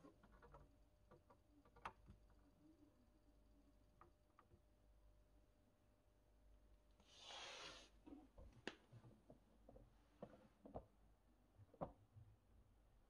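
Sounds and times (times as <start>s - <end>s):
faint handling clicks and knocks: 8.4s - 11.0s.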